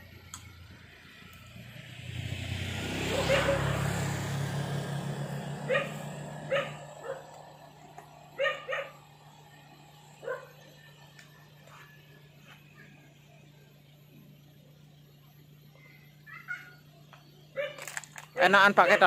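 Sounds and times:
vehicle passing: 1.0s - 11.0s
dog barking: 3.0s - 3.8s, 5.6s - 7.3s, 8.4s - 9.0s, 10.2s - 10.5s, 17.6s - 17.9s.

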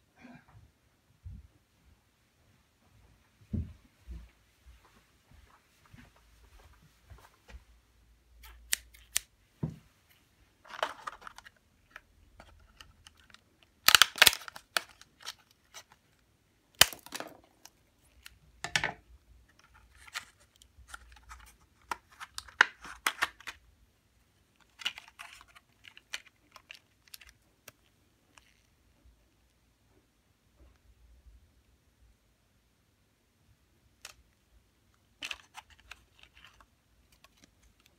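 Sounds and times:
scissors snipping plastic: 8.4s - 9.3s, 12.5s - 15.9s
plastic blister pack crackling: 10.7s - 18.4s.

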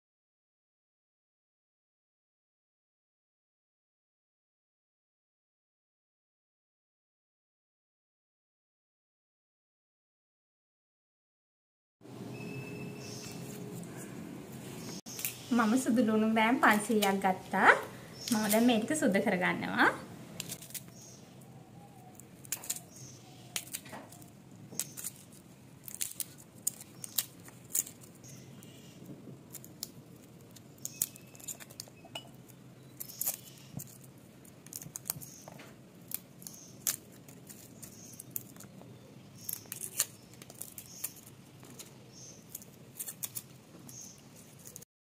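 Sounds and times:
knife clicking peeling garlic: 22.1s - 25.2s.

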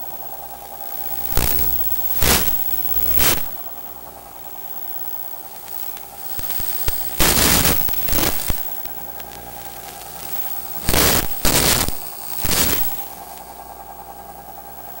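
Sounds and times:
steady hum: 0.0s - 15.0s
hissing radio static bursts: 1.2s - 3.6s, 5.6s - 13.2s.

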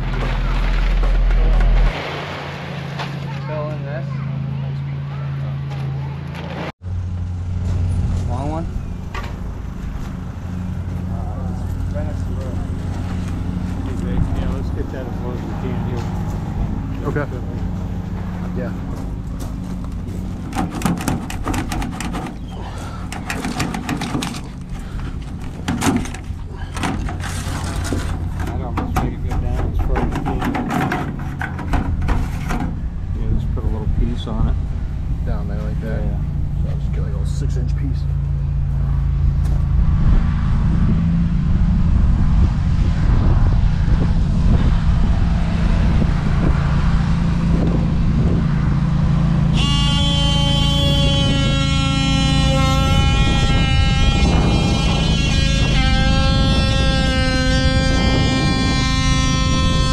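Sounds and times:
low engine running: 4.1s - 59.9s
clattering knocks and scrapes: 17.6s - 33.0s
loud sustained buzzing tone: 37.1s - 59.9s.

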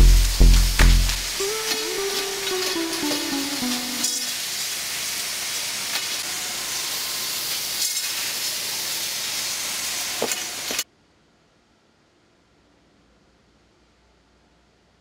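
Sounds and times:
production line hissing: 0.0s - 10.8s.

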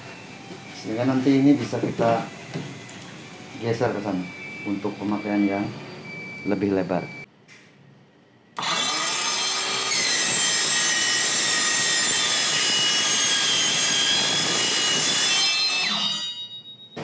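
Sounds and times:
circular saw spinning up: 8.6s - 16.3s
saw screeching through steel: 8.6s - 16.6s.

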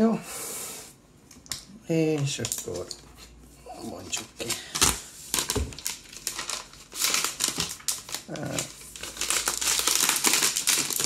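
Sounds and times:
plastic sleeve crinkling: 2.2s - 3.0s, 3.8s - 11.0s.

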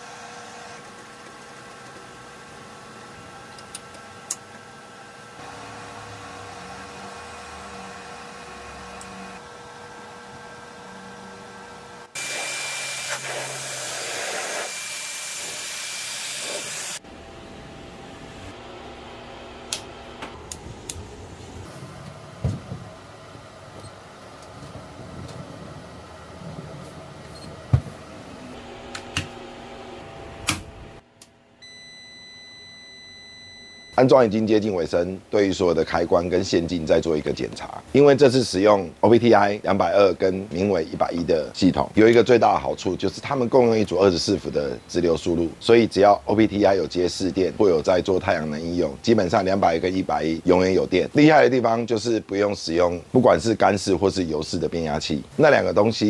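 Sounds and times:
cables and tools clicking and knocking: 3.5s - 4.6s
steady electrical hum: 16.3s - 56.0s.

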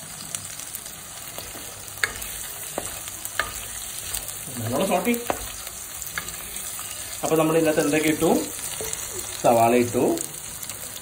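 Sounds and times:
onions sizzling in a pot: 0.0s - 11.0s
spatula knocking pot: 1.4s - 6.5s.

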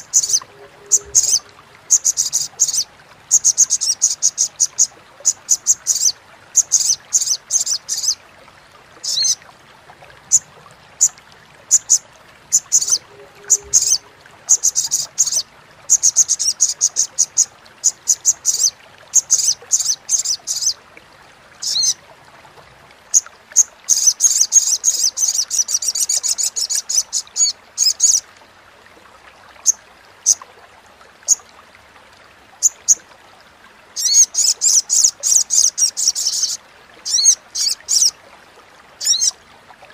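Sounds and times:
bird high-pitched chattering call: 0.1s - 4.9s, 12.6s - 20.8s, 39.0s - 39.3s.

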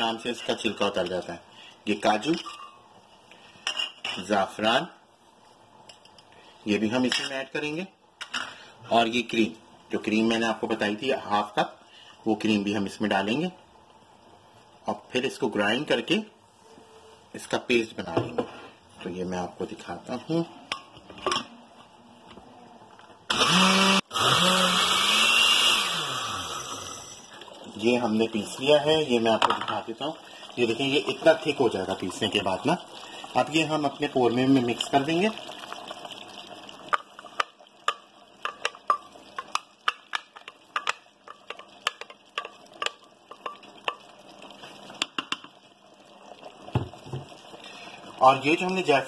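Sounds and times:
faint simmering hiss: 0.0s - 23.3s, 24.7s - 49.0s
blender grinding: 23.3s - 27.3s
wooden spatula tapping metal pot: 37.0s - 44.1s.

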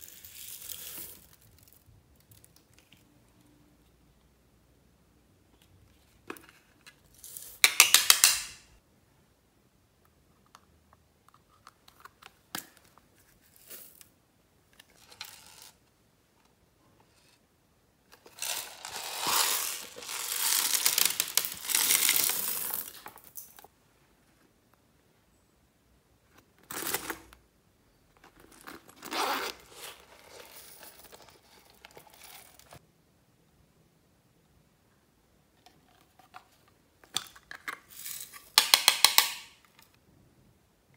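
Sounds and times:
beads pouring into glass tray: 0.0s - 1.7s, 18.2s - 23.5s.

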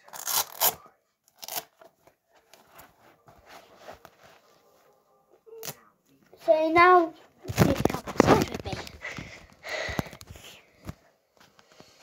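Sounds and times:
sharp tearing scrapes: 0.0s - 1.7s.

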